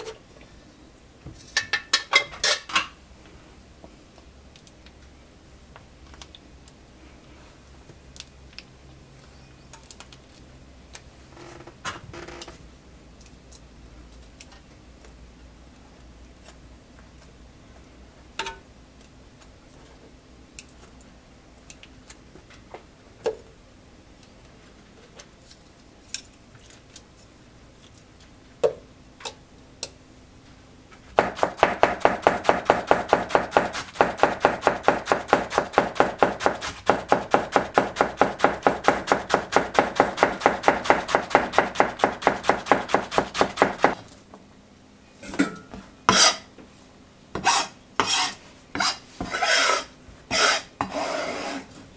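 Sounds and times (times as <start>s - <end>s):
knife chopping cabbage on a board: 31.2s - 44.0s.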